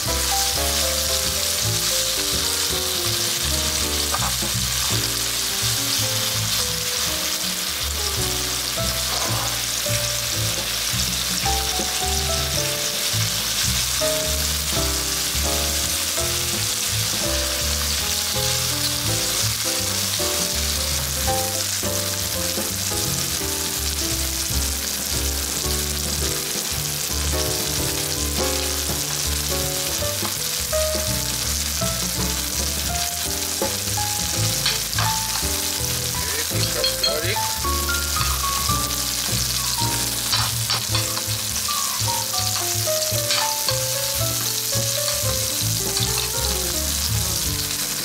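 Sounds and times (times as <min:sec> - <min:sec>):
chicken sizzling in frying pan: 0:00.0 - 0:48.0
soft background music: 0:00.1 - 0:48.0
utensil scraping pan: 0:39.6 - 0:41.6.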